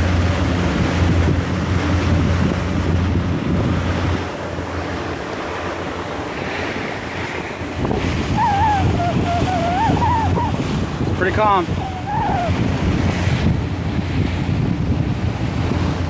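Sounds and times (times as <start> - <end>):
wind buffeting microphone: 0.0 - 5.0, 5.7 - 16.0
motorboat engine drone: 0.0 - 16.0
water rushing past hull: 0.0 - 16.0.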